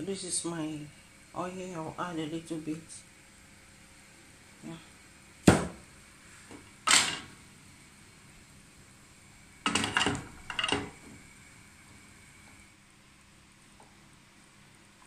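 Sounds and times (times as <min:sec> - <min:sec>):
pan rattling clatters: 0:09.7 - 0:10.9.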